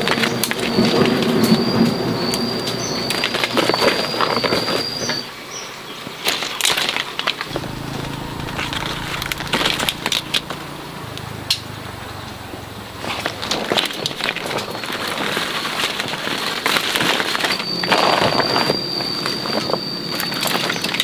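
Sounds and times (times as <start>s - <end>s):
thin high wavering tone: 7.5s - 11.6s.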